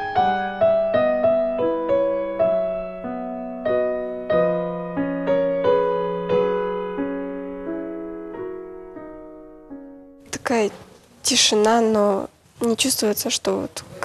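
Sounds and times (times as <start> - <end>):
slow gentle piano music: 0.0 - 10.8.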